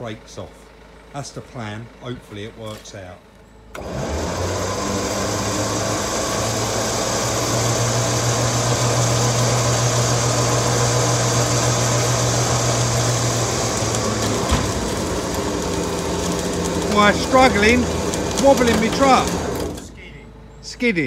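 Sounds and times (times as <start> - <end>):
winch winding cable: 3.7 - 20.0.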